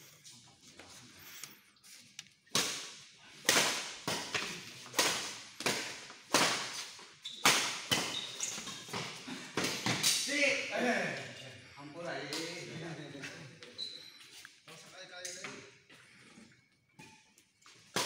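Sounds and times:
rackets hitting shuttlecock: 0:02.5 - 0:10.3.

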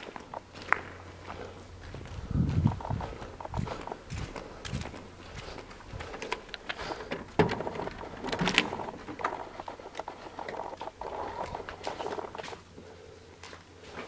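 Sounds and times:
footsteps in empty building: 0:00.0 - 0:14.0
scuffs clicks and knocks: 0:02.6 - 0:12.6.

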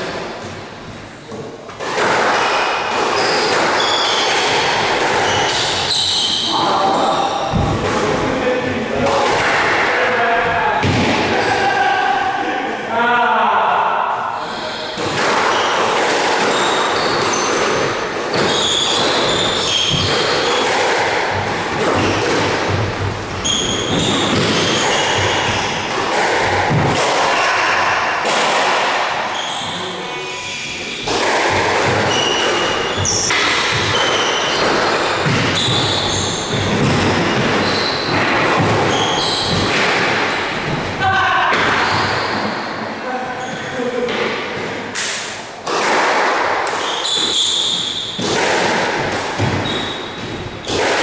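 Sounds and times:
shoes squeaking on floor: 0:03.2 - 0:07.5, 0:16.5 - 0:20.6, 0:23.3 - 0:25.8, 0:29.2 - 0:31.1, 0:32.0 - 0:39.8, 0:41.7 - 0:42.7, 0:43.3 - 0:43.8, 0:46.8 - 0:48.2, 0:49.4 - 0:50.8
ball hitting rackets: 0:15.0 - 0:27.4, 0:31.0 - 0:40.3, 0:44.1 - 0:47.4, 0:48.2 - 0:51.0.

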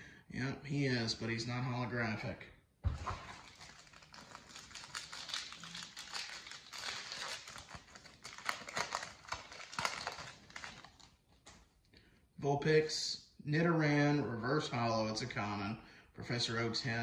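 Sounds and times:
foil card pack crinkling: 0:03.3 - 0:11.5.

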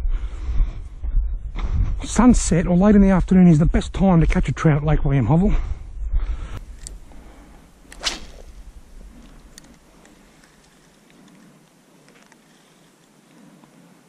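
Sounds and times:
fishing rod swish: 0:07.9 - 0:09.5.

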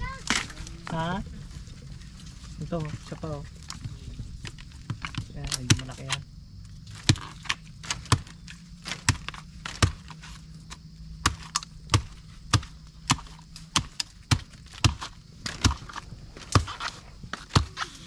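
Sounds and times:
blade chopping bamboo: 0:06.9 - 0:18.0.

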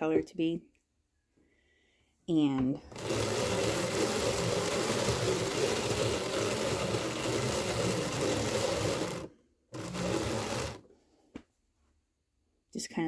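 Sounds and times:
hand-cranked drum carder whirring: 0:02.9 - 0:10.9.

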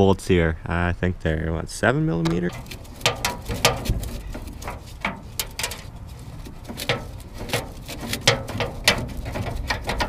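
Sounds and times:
hand ratchet clicking: 0:02.5 - 0:10.0.

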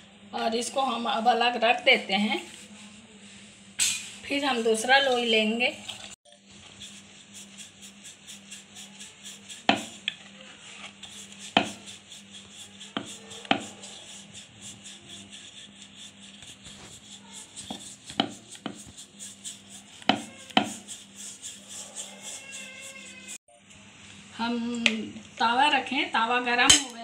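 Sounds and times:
rolling pin rolling dough: 0:06.6 - 0:23.4.

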